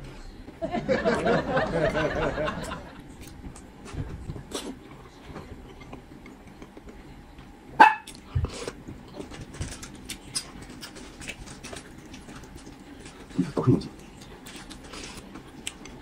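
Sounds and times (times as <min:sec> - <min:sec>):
small dog barking: 0:07.8 - 0:08.1.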